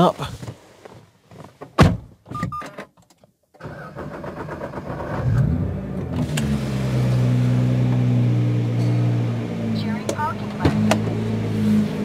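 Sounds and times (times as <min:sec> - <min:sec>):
car starter cranking: 0:03.6 - 0:07.2
car engine idling: 0:05.9 - 0:12.0.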